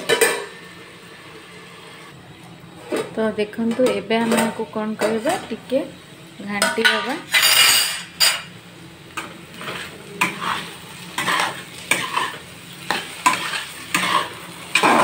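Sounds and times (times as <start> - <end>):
potatoes sizzling in oil: 3.5 - 15.0
metal spatula scraping pan: 9.5 - 15.0.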